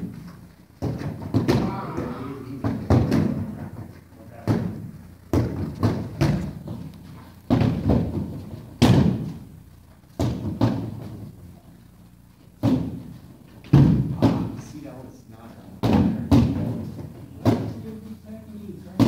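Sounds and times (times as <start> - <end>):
kicks thumping heavy bags: 0.0 - 3.7, 4.3 - 11.4, 12.5 - 14.6, 15.8 - 17.8.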